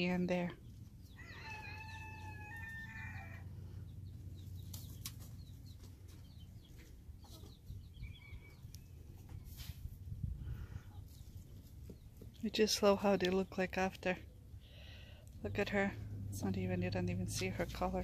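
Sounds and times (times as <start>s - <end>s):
hens scuffing in soil: 4.4s - 7.8s, 8.5s - 12.7s.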